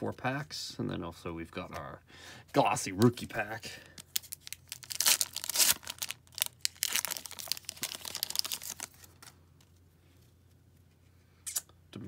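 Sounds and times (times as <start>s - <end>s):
wrapper tearing and crinkling: 4.0s - 9.3s.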